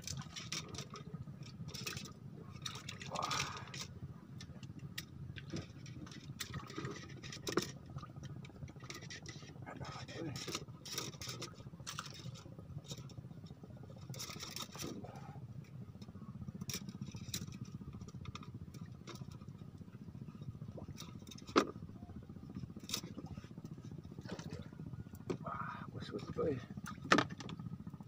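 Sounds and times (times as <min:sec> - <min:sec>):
fishing rods clicking and knocking: 0:00.0 - 0:03.9, 0:10.2 - 0:13.0, 0:26.2 - 0:27.6
low engine hum: 0:00.0 - 0:28.0.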